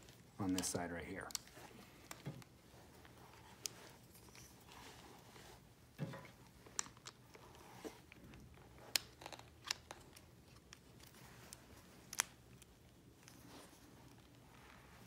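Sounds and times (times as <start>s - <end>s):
rustling of hands handling rope: 0.0s - 15.0s.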